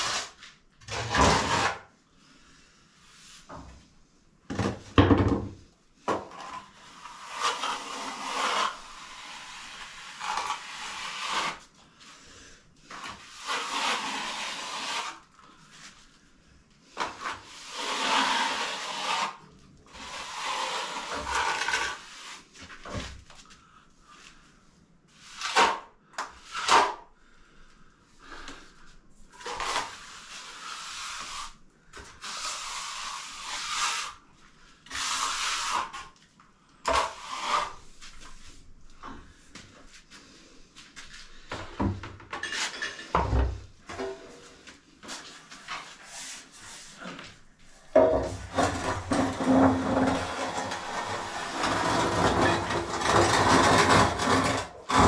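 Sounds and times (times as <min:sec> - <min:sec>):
trowel scraping render on wall: 0:00.0 - 0:01.9, 0:06.2 - 0:11.7, 0:12.9 - 0:15.3, 0:17.0 - 0:23.0, 0:25.2 - 0:27.0, 0:29.3 - 0:34.2, 0:34.9 - 0:36.2, 0:36.9 - 0:38.4, 0:48.0 - 0:55.0.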